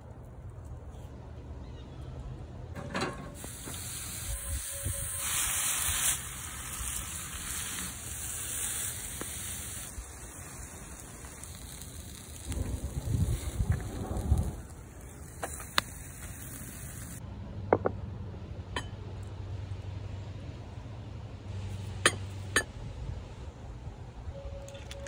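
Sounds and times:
meat sizzling on a grill: 3.4s - 17.2s.

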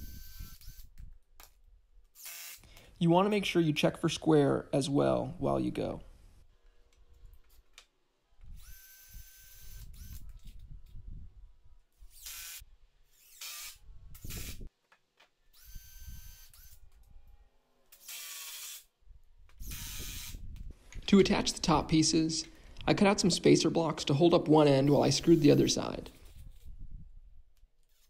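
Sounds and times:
noisy drill bursts: 0.0s - 0.8s, 2.2s - 2.6s, 8.6s - 10.2s, 12.2s - 12.6s, 13.2s - 14.6s, 15.6s - 16.8s, 18.0s - 18.9s, 19.6s - 20.4s
cordless drill motor whine: 0.0s - 0.9s, 2.2s - 2.6s, 8.4s - 10.6s, 12.1s - 12.6s, 13.2s - 14.6s, 15.5s - 16.8s, 18.0s - 18.8s, 19.6s - 20.5s.

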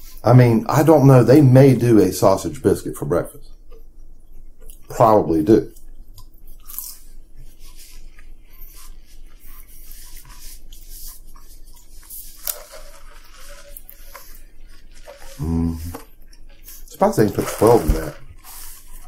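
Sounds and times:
faint steady hum: 0.0s - 19.0s
chewing: 3.3s - 4.9s, 5.7s - 19.0s
paper wrappers crinkling: 9.9s - 19.0s.

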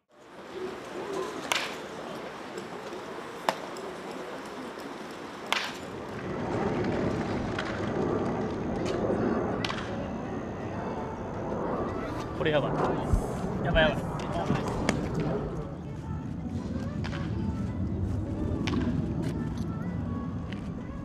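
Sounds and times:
baseball bat cracking balls: 1.4s - 2.0s, 4.9s - 6.0s
outdoor rumble: 5.2s - 21.0s.

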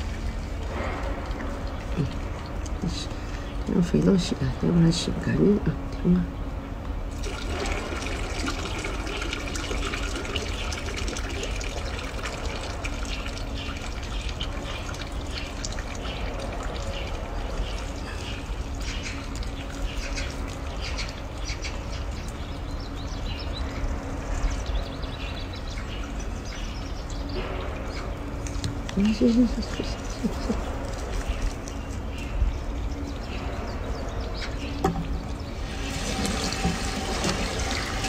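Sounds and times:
water splashing into washbasin: 7.2s - 21.3s, 35.6s - 38.0s.

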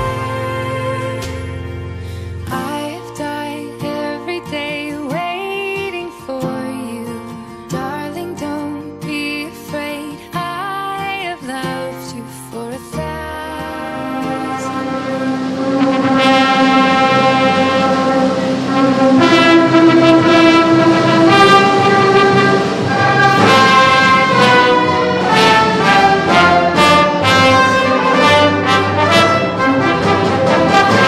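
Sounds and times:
orchestral music led by brass: 14.2s - 31.0s.

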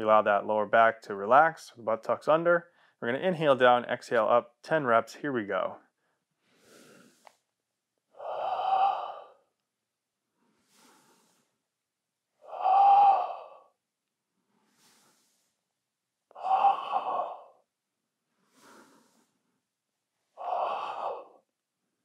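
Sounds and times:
faint inhales: 6.0s - 7.5s, 10.4s - 11.6s, 14.4s - 15.6s, 18.4s - 19.5s
man exhaling forcefully: 10.6s - 11.5s, 12.4s - 13.7s, 14.7s - 15.5s, 16.4s - 17.6s, 18.5s - 19.3s, 20.4s - 21.4s.

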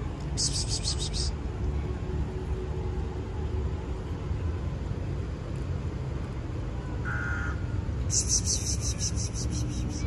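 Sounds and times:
low outdoor rumble: 0.0s - 10.0s
high bird-like call: 7.1s - 10.0s.

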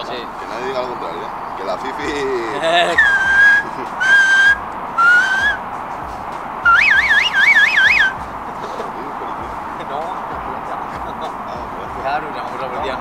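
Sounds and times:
person whistling: 2.9s - 5.6s, 6.7s - 8.2s.

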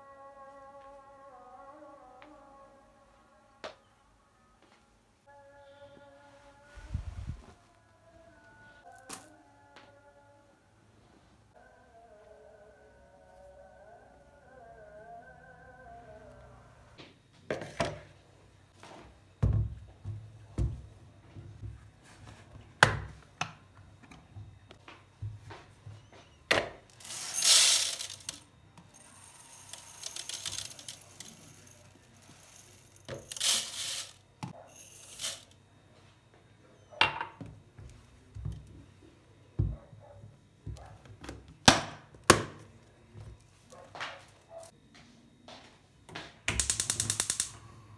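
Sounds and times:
dry rice pouring into a sieve: 27.0s - 28.3s.

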